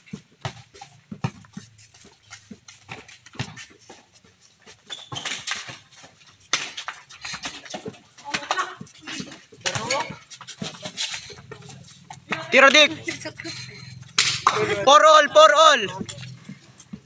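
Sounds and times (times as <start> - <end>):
basketball bouncing: 0.0 - 1.6, 4.9 - 14.6
feet hitting a concrete court: 0.0 - 17.0.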